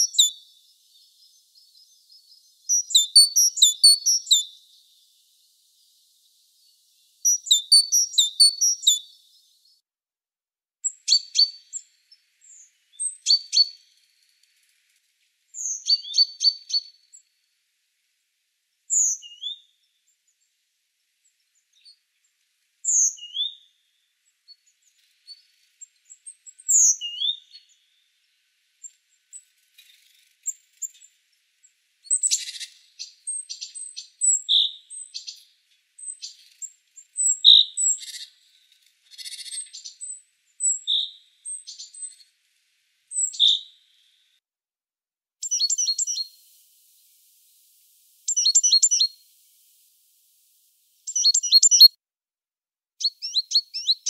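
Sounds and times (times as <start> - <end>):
small bird chirping and singing: 0.0 - 9.8, 10.8 - 14.1, 15.5 - 17.3, 18.9 - 20.1, 22.8 - 23.8, 24.5 - 28.0, 32.0 - 42.4, 43.1 - 44.2, 45.4 - 52.0, 53.0 - 54.0.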